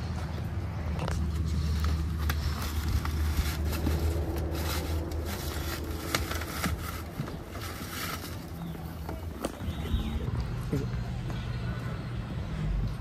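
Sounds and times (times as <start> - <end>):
paper bag crinkling and rustling: 1.1 - 9.8.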